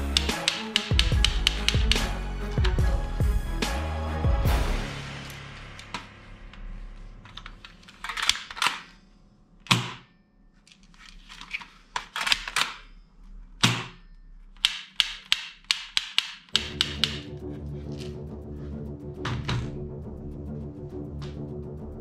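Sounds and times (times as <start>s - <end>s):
rapid sharp clicks: 0.0s - 3.0s, 14.6s - 17.4s
background music: 0.0s - 9.7s, 16.5s - 22.0s
plastic toy parts clicking: 0.1s - 2.0s, 7.3s - 8.9s, 10.7s - 12.8s, 13.6s - 17.2s.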